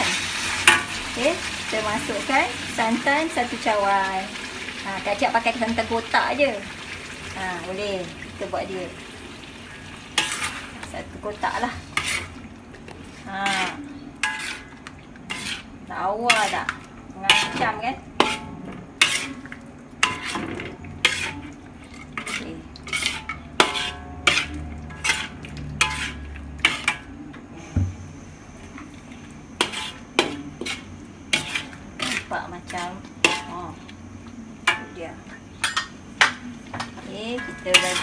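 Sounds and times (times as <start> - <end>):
metal spatula scraping a wok: 10.1 - 19.4, 20.0 - 27.1, 29.6 - 33.8, 37.3 - 38.0.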